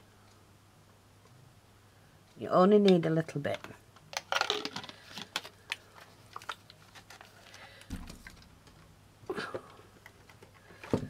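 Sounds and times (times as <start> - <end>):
screw cap being handled: 4.2 - 5.5.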